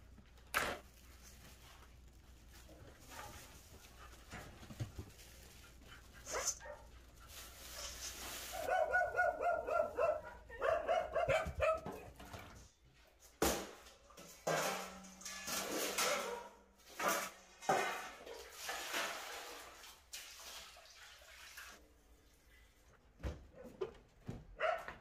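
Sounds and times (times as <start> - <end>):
dog barking: 6.2 - 6.9, 8.5 - 12.2, 16.1 - 16.6, 24.6 - 25.0.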